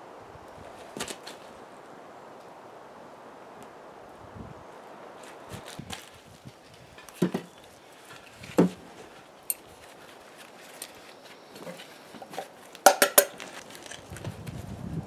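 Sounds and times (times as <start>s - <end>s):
knocks on steel wheelbarrow: 7.2s - 7.5s, 8.4s - 8.8s, 12.9s - 13.3s.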